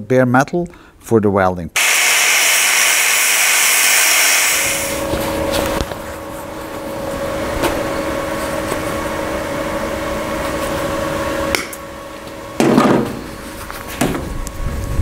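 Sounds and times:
loud noisy bursts: 1.8s - 5.1s
welding machine electric hum: 1.8s - 15.0s.

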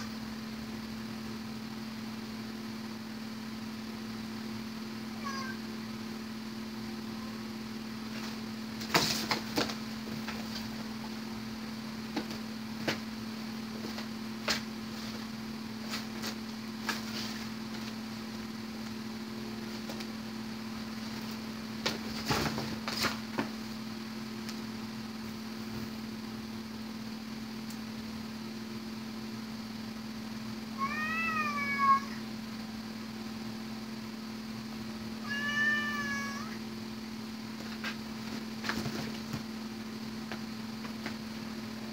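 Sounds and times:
household hum: 0.0s - 41.9s
cat scratching cardboard box: 8.1s - 11.0s.

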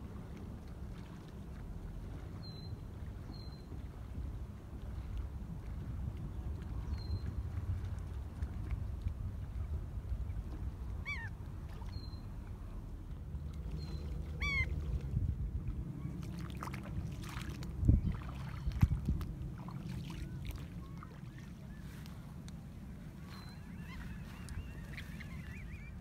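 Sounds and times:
wind rumbling on microphone: 0.0s - 26.0s
coastal bird calls: 11.0s - 12.8s, 13.7s - 15.0s, 20.0s - 26.0s.

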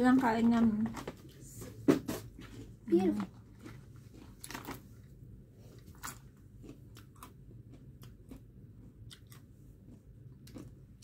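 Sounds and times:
low room hum: 0.0s - 11.0s
chewing crunchy chips: 2.4s - 11.0s.

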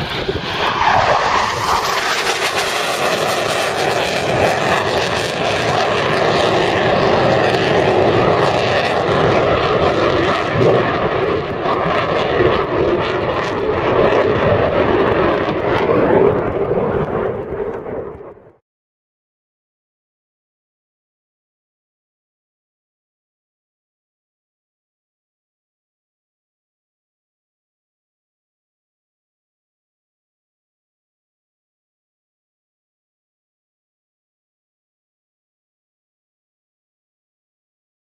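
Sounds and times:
jet flying low overhead: 0.0s - 18.6s.

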